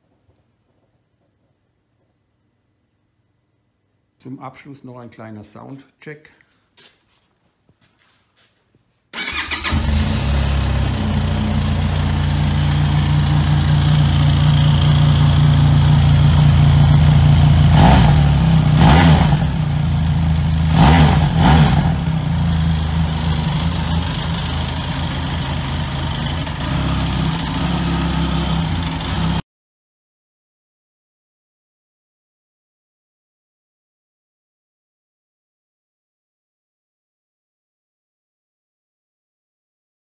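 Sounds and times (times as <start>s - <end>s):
motorcycle engine idling: 9.2s - 18.8s, 19.4s - 21.4s, 22.0s - 29.4s
engine revving: 9.2s - 29.4s.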